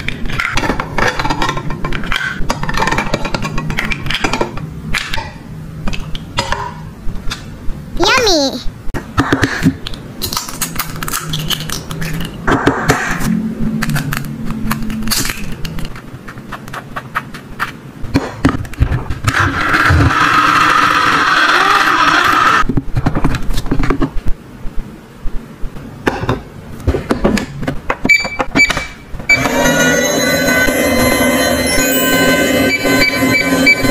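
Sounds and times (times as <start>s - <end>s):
toy hand mixer motor: 20.4s - 22.6s
short electronic beeps: 31.6s - 33.9s.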